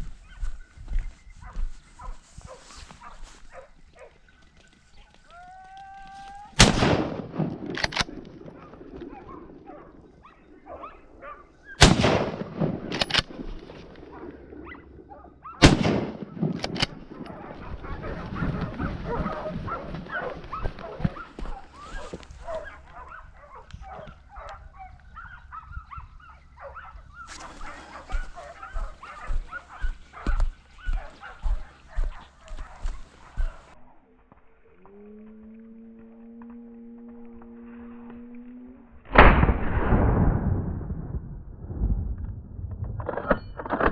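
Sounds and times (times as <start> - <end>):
gunshots: 6.6 - 9.1, 11.8 - 13.7, 15.6 - 17.4, 39.1 - 41.2
hounds baying: 8.4 - 11.8, 17.2 - 33.8.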